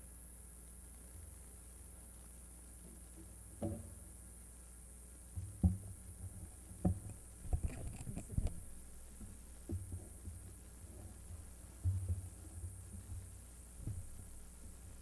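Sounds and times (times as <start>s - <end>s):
low steady hum: 0.0s - 15.0s
small bumps and rustles: 1.0s - 4.3s, 5.2s - 15.0s
dull thumps and knocks: 3.1s - 4.0s, 5.3s - 15.0s.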